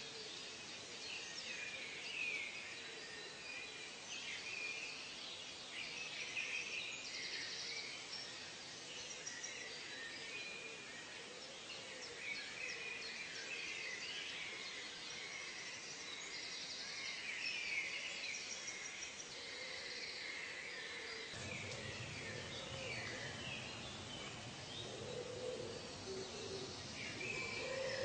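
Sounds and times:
background hiss: 0:00.0 - 0:28.0
birds chirping: 0:21.1 - 0:28.0
low noise: 0:21.4 - 0:28.0.

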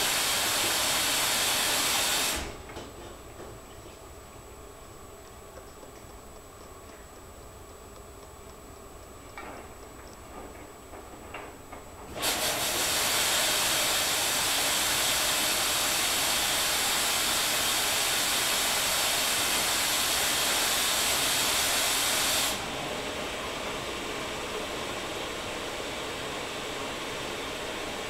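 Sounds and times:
washing machine filling with water: 0:00.0 - 0:02.7, 0:12.1 - 0:28.0.

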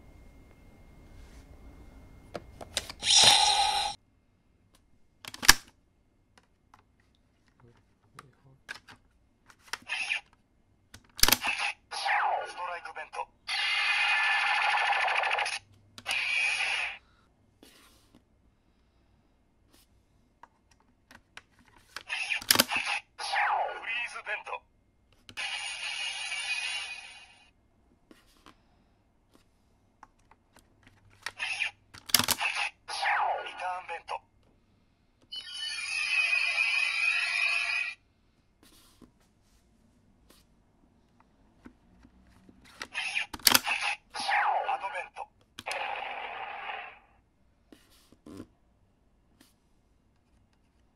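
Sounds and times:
electronic toy sound effect: 0:03.0 - 0:04.0, 0:09.9 - 0:10.3, 0:11.4 - 0:17.0, 0:22.1 - 0:24.6, 0:25.4 - 0:27.5, 0:31.4 - 0:34.2, 0:35.3 - 0:38.0, 0:42.9 - 0:47.1.

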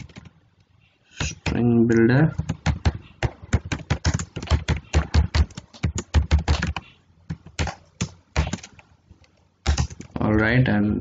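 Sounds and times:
computer keyboard typing: 0:00.0 - 0:00.3, 0:02.4 - 0:10.5.

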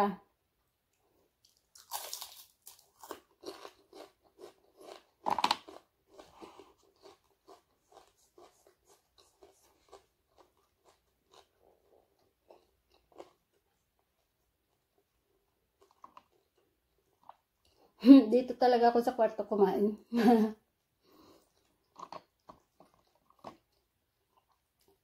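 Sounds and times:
person chewing crunchy fish: 0:01.4 - 0:14.0, 0:15.7 - 0:17.8, 0:21.1 - 0:25.0.

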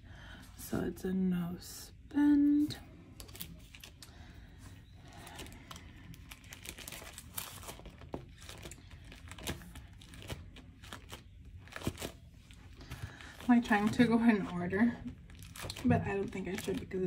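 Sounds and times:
paper rustling and crinkling: 0:05.0 - 0:17.0.

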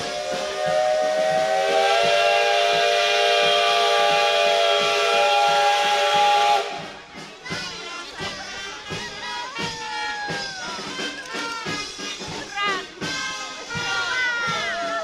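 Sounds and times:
steam locomotive whistle: 0:00.0 - 0:07.0.

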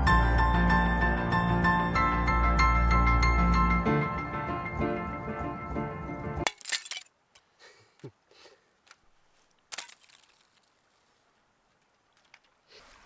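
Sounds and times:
background music: 0:00.0 - 0:06.5
ice cracking and clinking: 0:06.4 - 0:07.1, 0:09.7 - 0:10.8.

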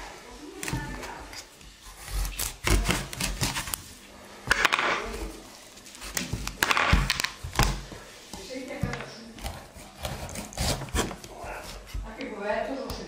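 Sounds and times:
knife scraping cut: 0:09.4 - 0:11.9.

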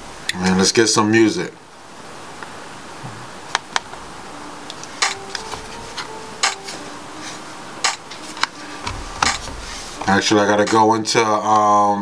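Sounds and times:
trackpad clicks: 0:04.6 - 0:06.8, 0:07.8 - 0:10.1.

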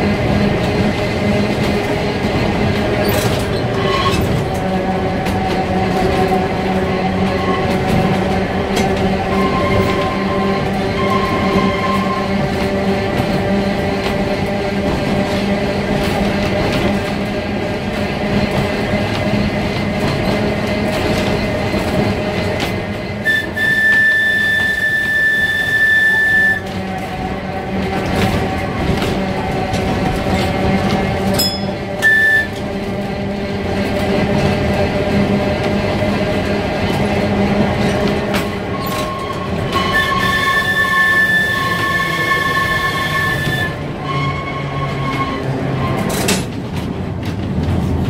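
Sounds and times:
tram wheels rumbling: 0:00.0 - 0:48.0
high-pitched wheel squeal: 0:03.5 - 0:04.4, 0:09.3 - 0:12.4, 0:23.2 - 0:26.7, 0:31.4 - 0:32.6, 0:38.7 - 0:46.1.

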